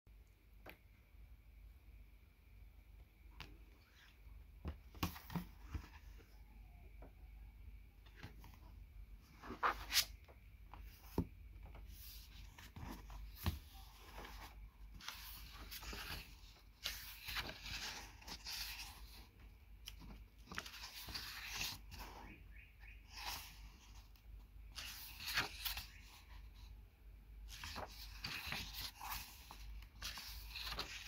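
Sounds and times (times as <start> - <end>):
book taps and flaps: 4.6 - 5.9
pages rustling: 9.2 - 22.2, 24.7 - 26.7, 27.4 - 31.0.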